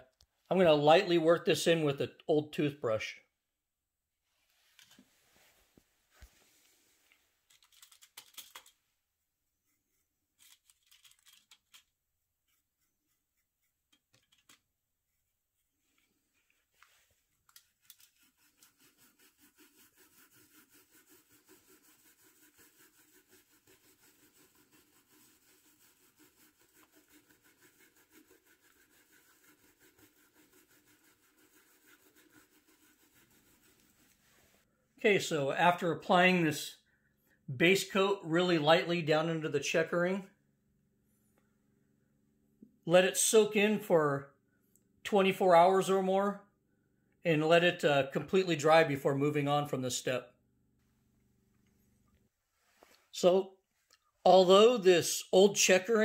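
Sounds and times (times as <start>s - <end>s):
toothbrush scrubbing wood: 9.7s - 34.7s.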